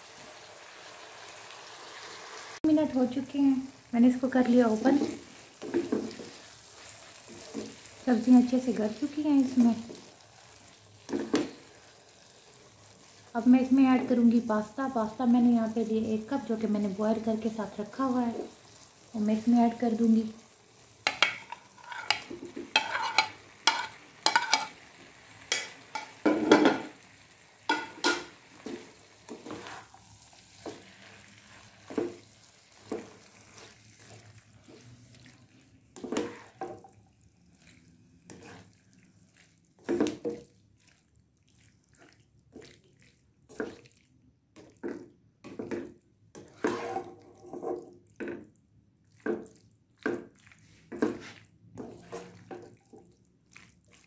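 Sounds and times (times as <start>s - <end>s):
spatula scraping plate and pan: 21.0s - 27.0s, 27.7s - 35.3s, 36.0s - 37.0s, 38.2s - 38.8s, 44.8s - 48.4s, 50.0s - 53.0s.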